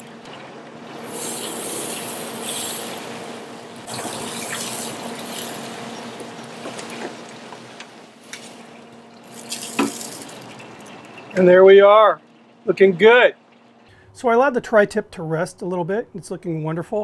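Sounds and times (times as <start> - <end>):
meat sizzling on a grill: 0.8 - 10.5.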